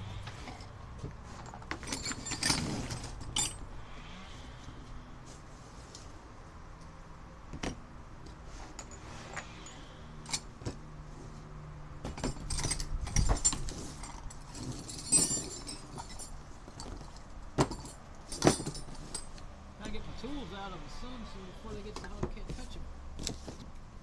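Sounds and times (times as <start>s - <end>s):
metal tools clinking: 0.4s - 3.7s, 8.7s - 10.5s, 12.1s - 19.5s.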